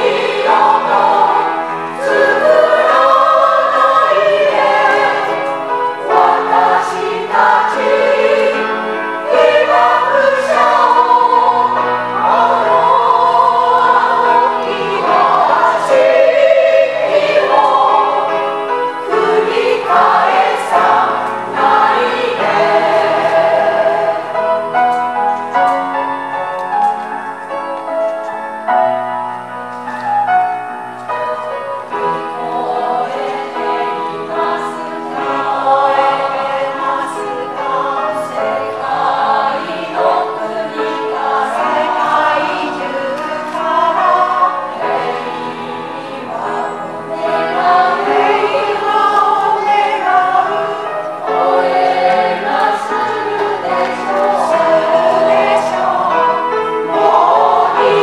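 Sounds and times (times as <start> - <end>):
mixed choir singing: 0.0 - 25.5, 31.5 - 58.0.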